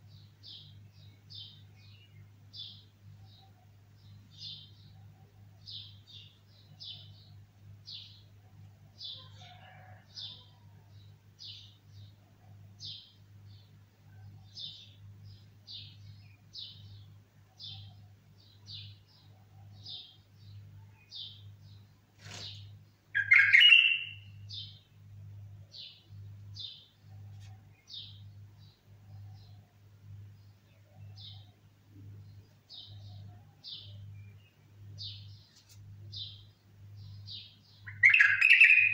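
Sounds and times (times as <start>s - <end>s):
low electrical hum: 0.0s - 38.9s
bird chirping: 10.2s - 24.9s, 25.5s - 38.9s
harsh bird call: 23.2s - 24.3s, 37.9s - 38.9s.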